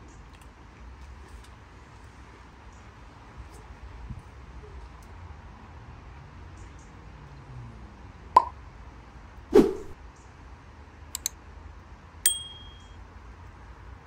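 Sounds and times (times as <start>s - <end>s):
tableware clinking: 12.3s - 12.9s
metallic ding: 12.3s - 13.0s.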